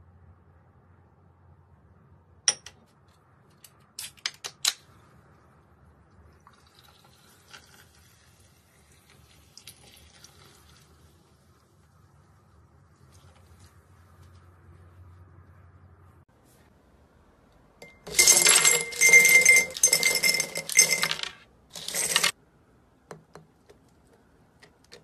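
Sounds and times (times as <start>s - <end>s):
carbonated water fizzing into glass: 6.4s - 11.6s.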